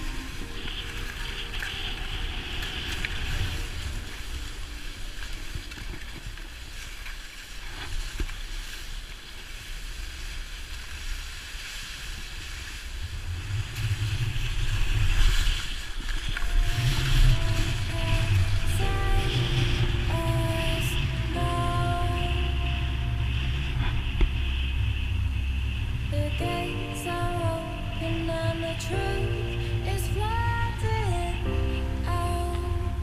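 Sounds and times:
wind buffeting microphone: 0.0 - 8.7
skis sliding through snow: 0.0 - 33.0.

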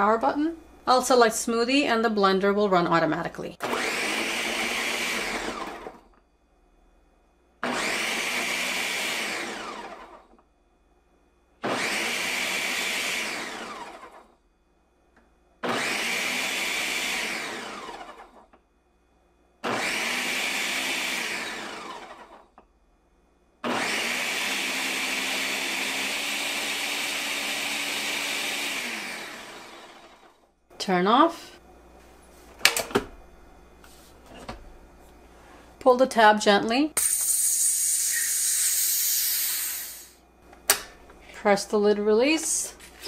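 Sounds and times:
blender running: 3.6 - 6.1, 7.6 - 10.4, 11.6 - 14.3, 15.6 - 18.5, 19.6 - 22.6, 23.6 - 30.5, 37.0 - 40.2.

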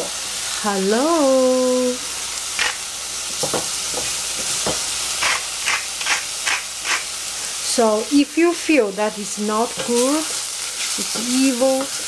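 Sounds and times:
mushrooms sizzling in a pan: 0.0 - 12.0
wooden spatula scraping a pan: 9.7 - 12.0.

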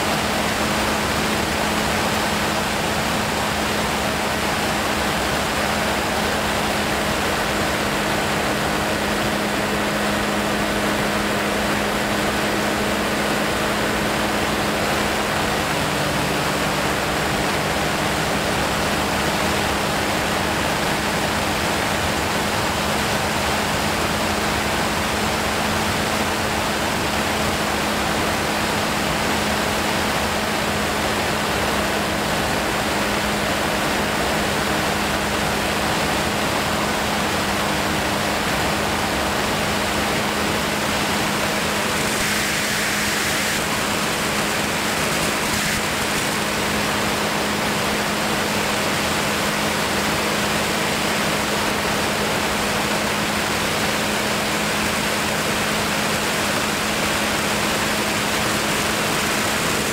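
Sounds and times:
air rushing past aircraft: 0.0 - 59.9.

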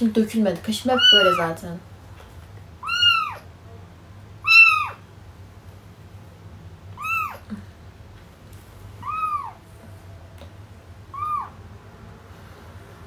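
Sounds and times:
cat meowing: 0.9 - 1.6, 2.8 - 3.5, 4.4 - 5.0, 7.0 - 7.5, 9.0 - 9.6, 11.1 - 11.6.

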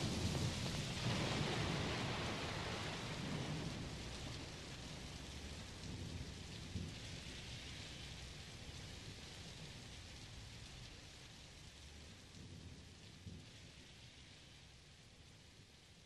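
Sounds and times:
thunder rumbling: 0.0 - 7.4
steady rain downpour: 0.0 - 16.0.

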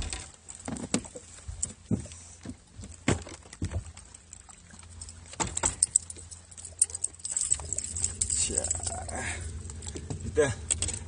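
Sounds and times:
low steady rumble: 3.8 - 11.0.

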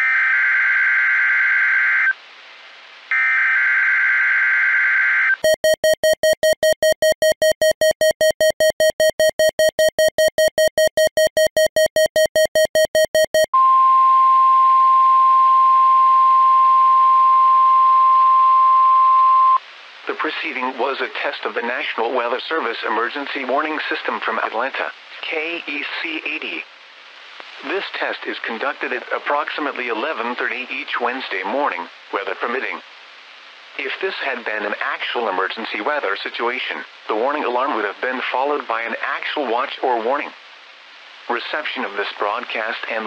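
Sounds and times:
steady warning alarm tone: 5.4 - 13.5.

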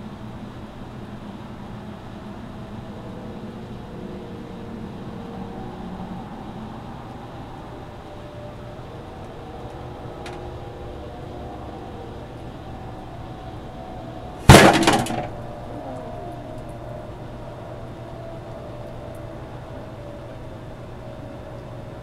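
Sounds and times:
bottle bursting with loud bang: 14.5 - 15.2.

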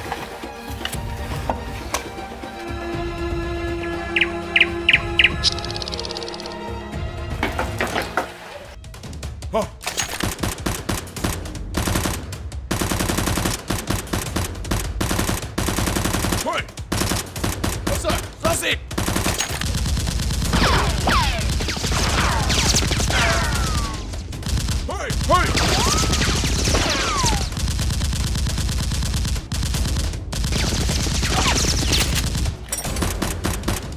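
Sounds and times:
machine gun fire sound effects: 19.0 - 33.9.

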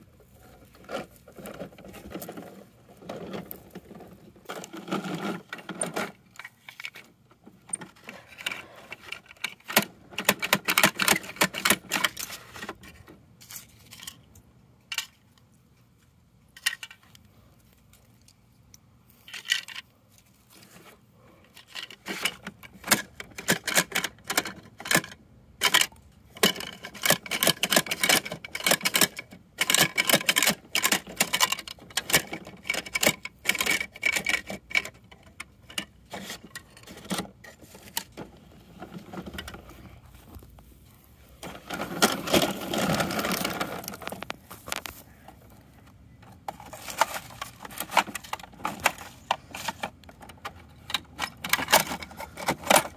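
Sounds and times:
plastic toy parts clicking: 7.7 - 13.0, 21.5 - 38.2, 46.5 - 52.9.

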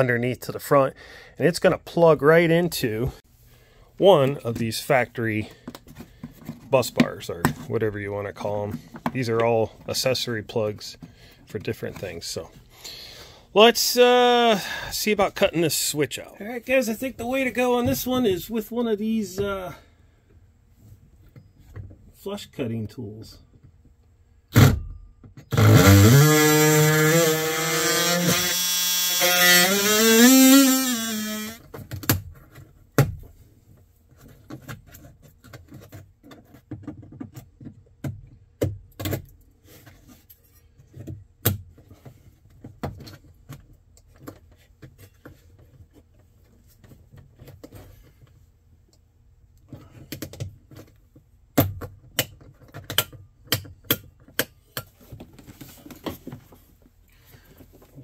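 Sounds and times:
oscillating multi-tool cutting plastic: 25.5 - 31.6.

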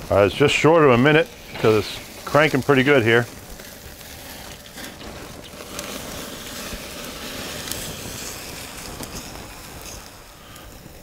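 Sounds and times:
fat crackling in flames: 0.0 - 11.0
meat sizzling on a grill: 0.0 - 11.0.

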